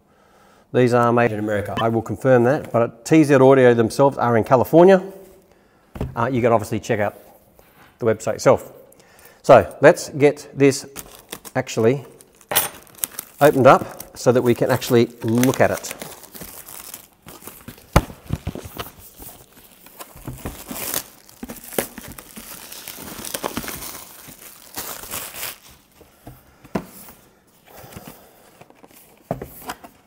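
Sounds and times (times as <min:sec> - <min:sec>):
plastic wrap tearing and crinkling: 0:10.9 - 0:26.0.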